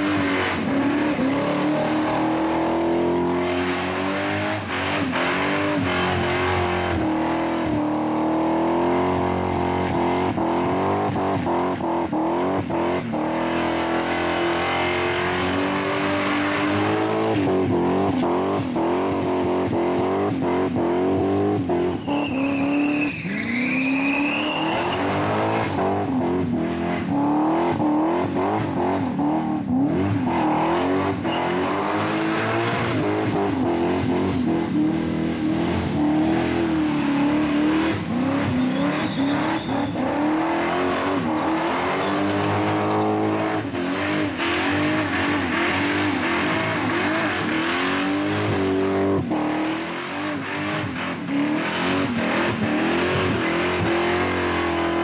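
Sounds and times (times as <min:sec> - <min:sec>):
engine revving at high revs: 0:00.0 - 0:22.0, 0:24.6 - 0:55.0
tyres squealing: 0:21.9 - 0:25.2, 0:38.2 - 0:40.3, 0:41.2 - 0:42.9.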